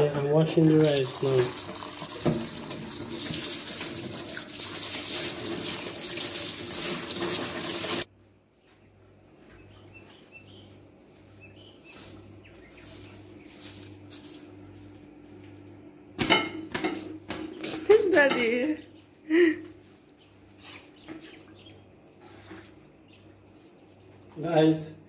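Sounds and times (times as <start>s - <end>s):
tap water splashing onto rice: 0.9s - 8.0s.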